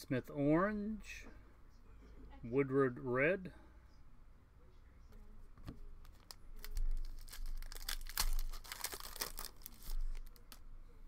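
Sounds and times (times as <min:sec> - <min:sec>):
foil wrapper tearing and crinkling: 0:06.2 - 0:10.6.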